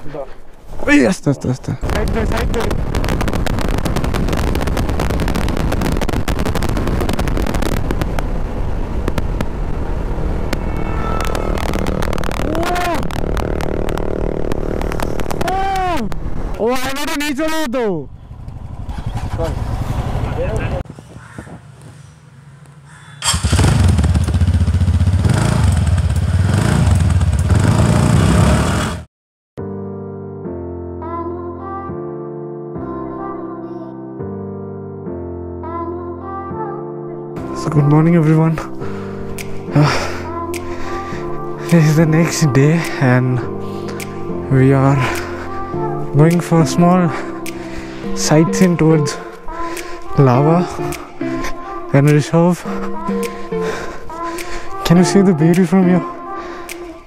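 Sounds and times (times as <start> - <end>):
motorcycle engine and road noise: 7.7 - 15.4, 18.0 - 29.1
motorcycle engine running: 18.1 - 21.4, 23.2 - 29.1
wind buffeting microphone: 18.4 - 22.6.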